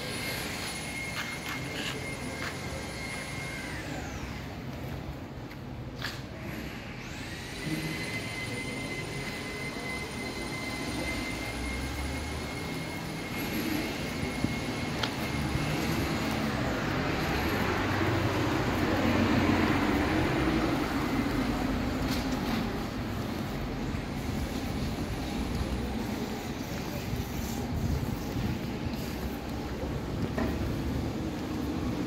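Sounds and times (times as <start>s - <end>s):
thin high whine: 6.4s - 30.5s
traffic hum: 8.5s - 32.0s.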